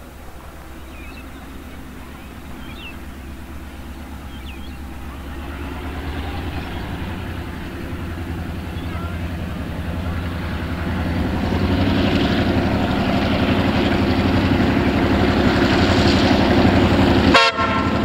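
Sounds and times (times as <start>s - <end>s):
diesel locomotive engine droning: 0.0s - 18.0s.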